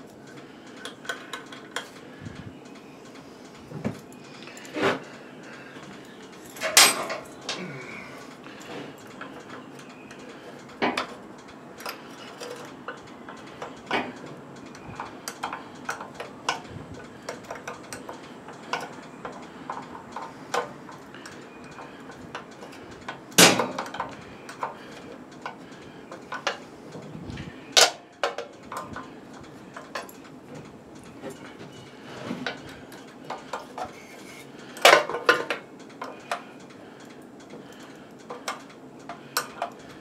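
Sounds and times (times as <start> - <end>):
light metal clicks and clinks: 0.0 - 27.0, 27.7 - 40.0
loud metal clanks: 23.4 - 24.1.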